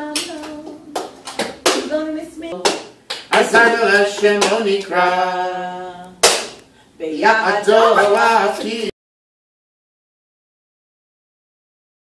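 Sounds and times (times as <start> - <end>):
hands slapping plastic cups: 6.2 - 6.7.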